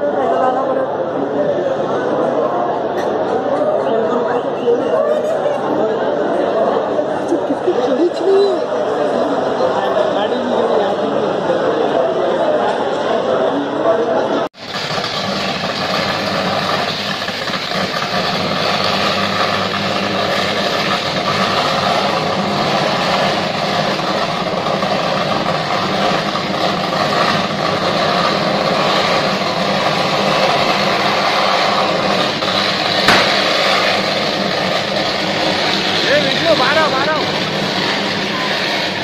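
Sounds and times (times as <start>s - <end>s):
sharp electrical crack: 14.6s - 37.9s
electrical arcing buzz: 14.6s - 39.0s.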